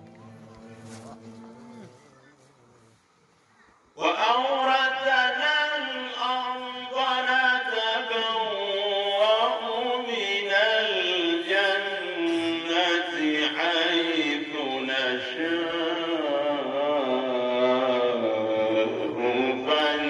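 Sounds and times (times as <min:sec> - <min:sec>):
man chanting into a microphone: 0:04.0 - 0:20.0.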